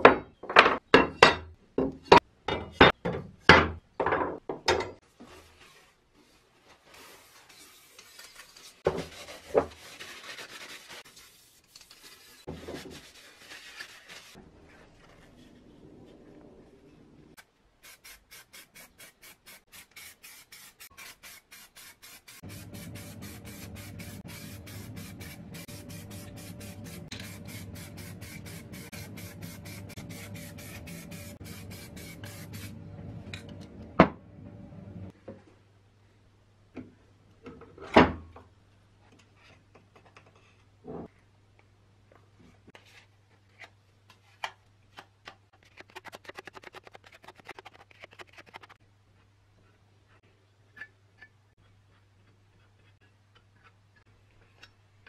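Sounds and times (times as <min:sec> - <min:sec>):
spray can rattling: 0:17.9 - 0:32.7, 0:45.6 - 0:48.8.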